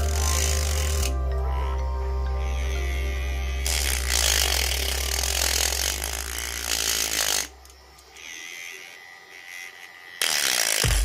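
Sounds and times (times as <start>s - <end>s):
blade grinding on sandpaper: 0.0s - 1.2s, 2.6s - 11.0s
small electric motor spinning: 0.0s - 1.7s, 2.5s - 11.0s.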